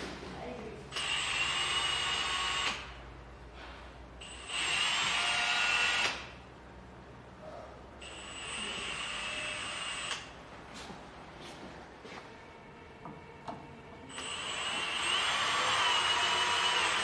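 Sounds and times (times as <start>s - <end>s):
cordless drill whining: 0.9s - 2.9s, 4.2s - 6.2s, 14.1s - 17.0s.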